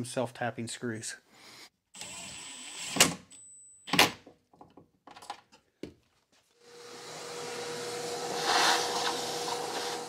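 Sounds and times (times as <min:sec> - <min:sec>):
vacuum cleaner humming: 0:06.6 - 0:10.0
cordless drill driving screws: 0:06.7 - 0:10.0.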